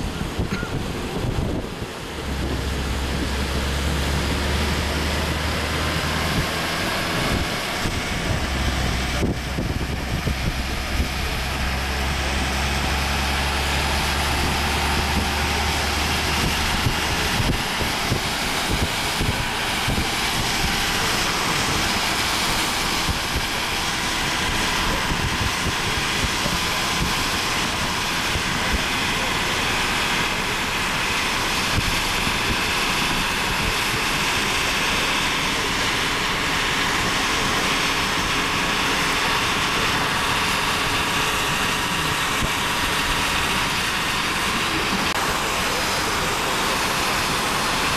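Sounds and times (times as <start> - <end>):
strong wind on microphone: 0.0 - 28.8.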